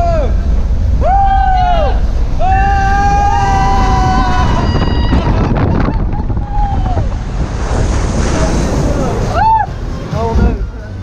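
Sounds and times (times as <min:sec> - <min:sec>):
people screaming: 0:00.0 - 0:07.2, 0:09.2 - 0:09.8
water noise: 0:00.0 - 0:11.0
wind on microphone: 0:00.0 - 0:11.0.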